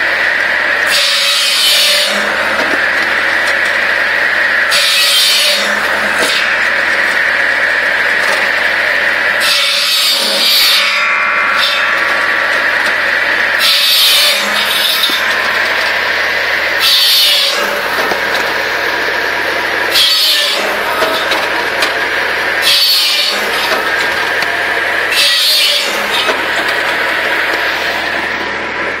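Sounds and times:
circular saw running: 0:00.0 - 0:29.0
saw blade whining through log: 0:00.0 - 0:29.0.

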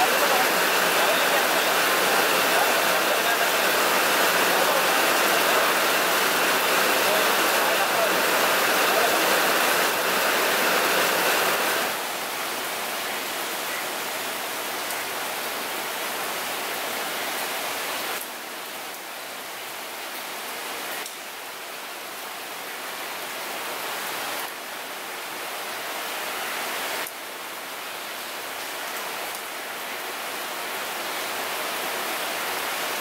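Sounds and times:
heavy rain hissing: 0:00.0 - 0:21.4
rain pattering on water: 0:00.0 - 0:33.0.

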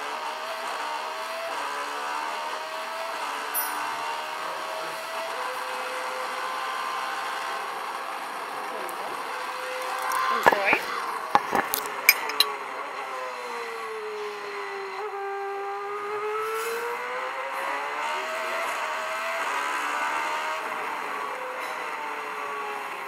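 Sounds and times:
racing car engine revving: 0:15.6 - 0:21.6.

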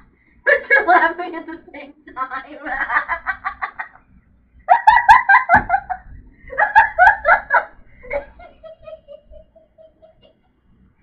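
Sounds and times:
women laughing hard: 0:04.7 - 0:10.6.

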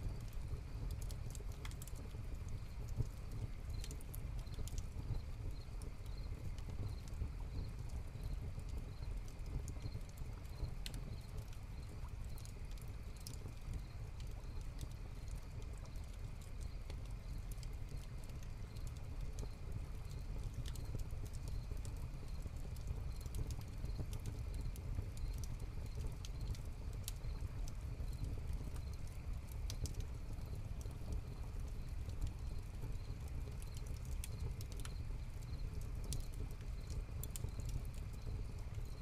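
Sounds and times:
fire crackling and popping: 0:00.0 - 0:39.0
crickets chirping: 0:34.3 - 0:35.6.

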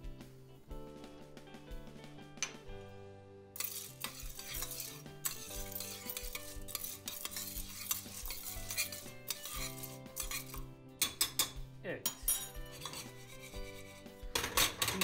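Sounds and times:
spoon stirring kernels in metal pot: 0:03.6 - 0:15.0.

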